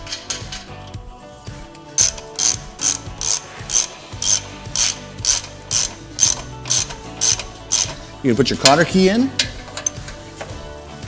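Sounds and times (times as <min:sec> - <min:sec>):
socket ratchet clicking: 0:02.0 - 0:08.0.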